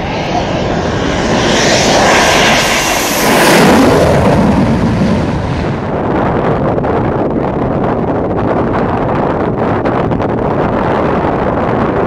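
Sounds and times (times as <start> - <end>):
propeller aircraft droning past: 0.0 - 5.9.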